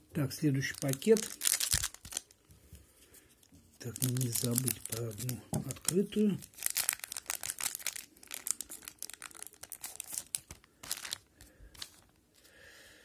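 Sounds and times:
wrapper tearing and crinkling: 0.6s - 2.4s, 3.8s - 12.1s.

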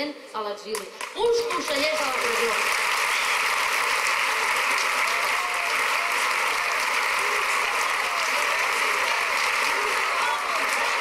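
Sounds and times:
crowd applauding: 1.0s - 11.0s.

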